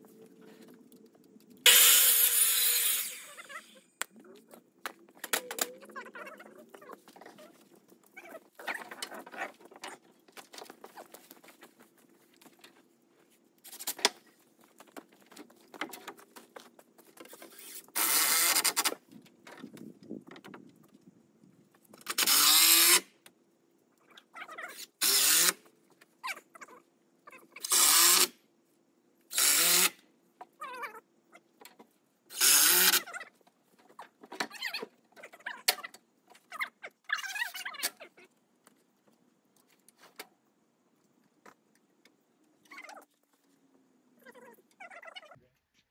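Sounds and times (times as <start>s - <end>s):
cordless drill running: 22.2s - 23.0s, 29.3s - 29.9s.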